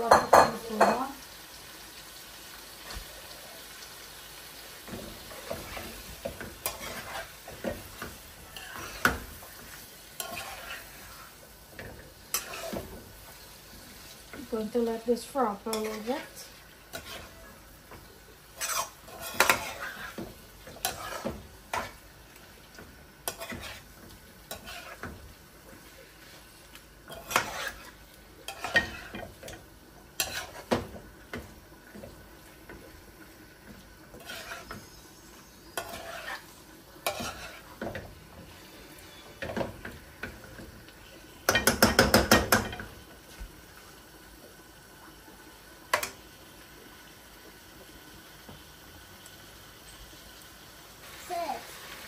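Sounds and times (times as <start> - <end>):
light sizzle: 0.0 - 52.0
metal spoon scraping a pan: 4.9 - 13.1, 14.0 - 22.1, 22.8 - 33.0, 33.7 - 43.0.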